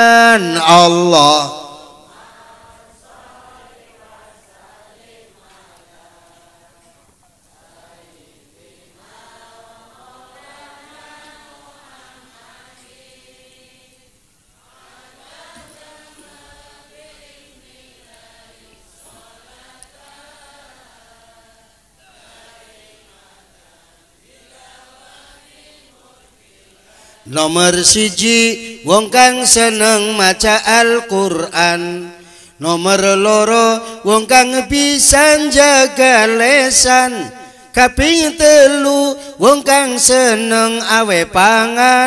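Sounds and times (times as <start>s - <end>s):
man preaching: 0.0s - 1.9s, 32.8s - 42.0s
voices chanting: 1.7s - 29.6s.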